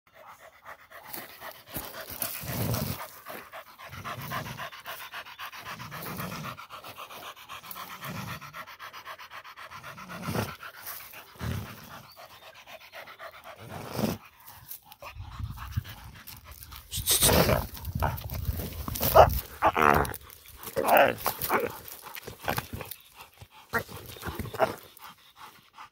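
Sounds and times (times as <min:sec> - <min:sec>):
dog panting fast: 0:00.1 - 0:19.6, 0:20.2 - 0:25.9.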